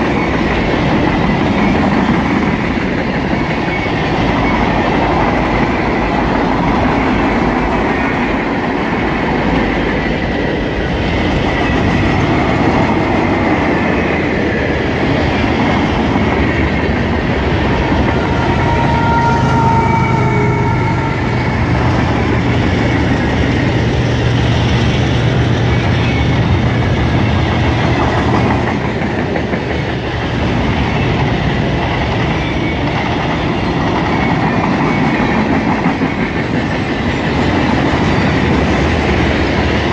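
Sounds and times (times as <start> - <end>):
diesel locomotive engine hum: 0.0 - 39.9
freight train rumbling past: 0.0 - 39.9.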